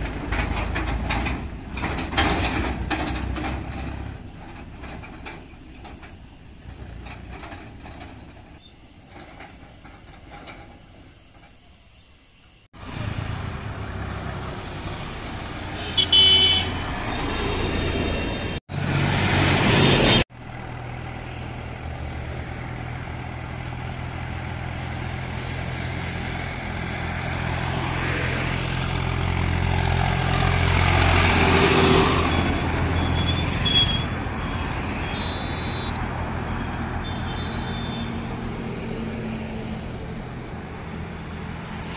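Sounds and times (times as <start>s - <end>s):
passing traffic: 0.0s - 41.9s
tractor diesel engines passing: 0.0s - 41.9s.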